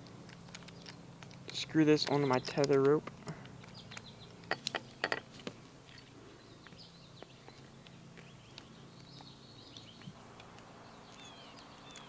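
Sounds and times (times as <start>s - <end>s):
faint bird chirps: 6.0s - 12.0s.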